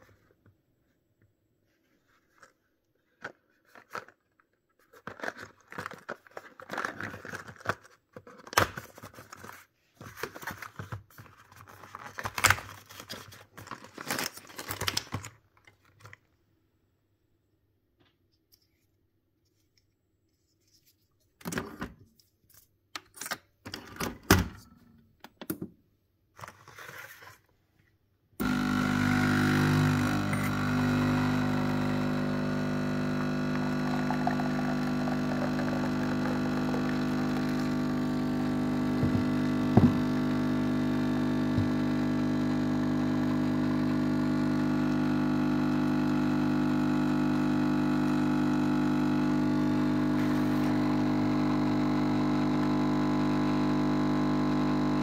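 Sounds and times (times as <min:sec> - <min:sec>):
coffee machine pump buzzing: 0:28.4 - 0:55.0.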